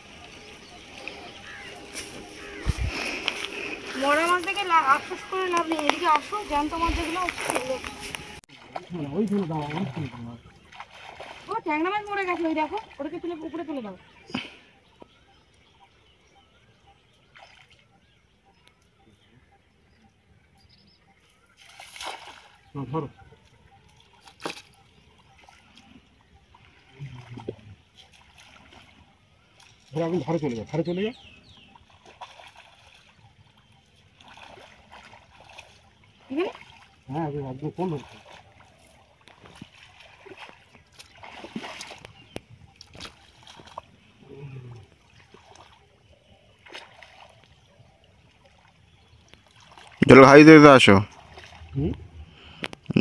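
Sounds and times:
water splash: 0:00.0 - 0:13.1, 0:21.6 - 0:22.8, 0:24.0 - 0:25.6, 0:34.2 - 0:37.0, 0:37.8 - 0:43.9, 0:44.8 - 0:45.9, 0:46.5 - 0:47.6
water trickling and dripping: 0:00.0 - 0:15.7, 0:21.6 - 0:52.8.

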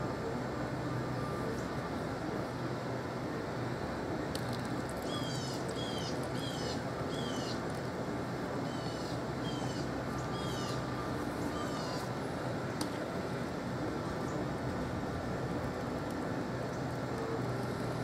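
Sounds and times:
steady background hum: 0:00.0 - 0:18.0
bird calling: 0:05.0 - 0:07.6, 0:08.6 - 0:12.2.

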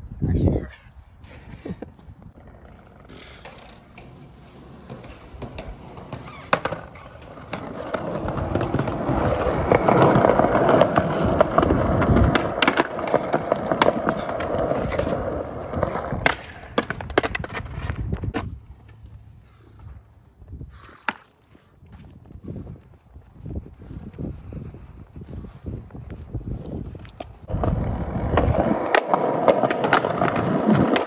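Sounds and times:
skateboard wheels rolling on concrete: 0:01.0 - 0:31.0
skateboard clacks: 0:02.3 - 0:18.5, 0:27.1 - 0:31.0.

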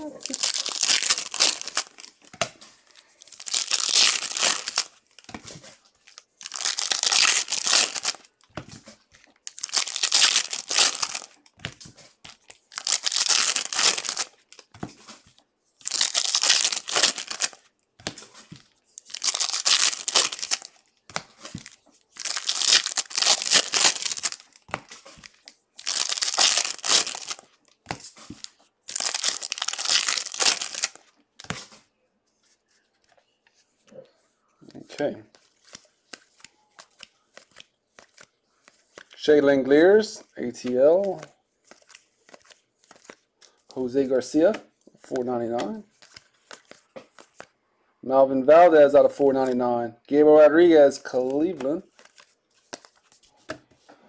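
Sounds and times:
foil wrappers crinkling and ripping: 0:00.2 - 0:02.2, 0:02.8 - 0:05.3, 0:06.0 - 0:08.4, 0:09.3 - 0:14.7, 0:15.8 - 0:18.2, 0:19.0 - 0:20.8, 0:21.4 - 0:31.6.

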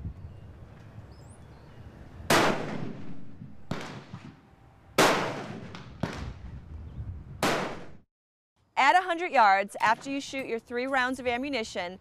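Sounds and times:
rifle shots echoing: 0:02.3 - 0:04.4, 0:05.0 - 0:06.3, 0:07.4 - 0:08.0.

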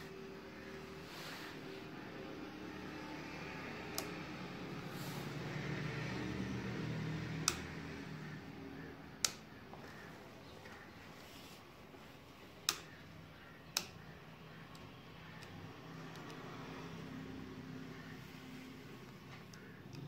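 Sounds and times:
handlebar switch clicks: 0:07.4 - 0:07.7.

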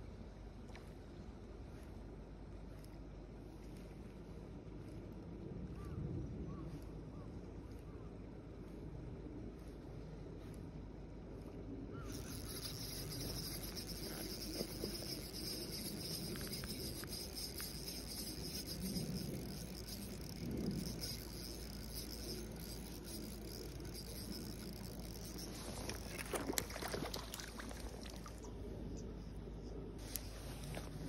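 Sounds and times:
fishing reel cranking whirr: 0:11.9 - 0:28.4
water splashes: 0:25.5 - 0:28.6.

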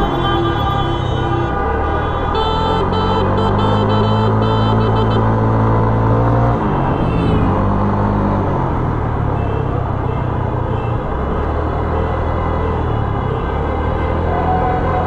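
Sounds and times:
long horn blasts: 0:00.0 - 0:05.9
street traffic: 0:00.0 - 0:15.0.

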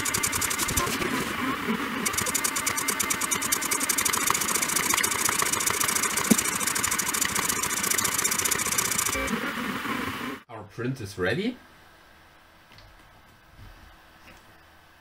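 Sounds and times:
stepper motors buzzing: 0:00.0 - 0:10.4
sharp click: 0:02.1 - 0:09.2.

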